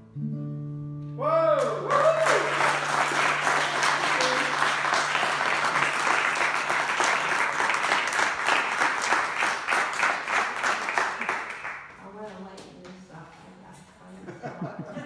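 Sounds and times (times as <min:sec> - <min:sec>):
audience applauding: 0:01.6 - 0:12.0.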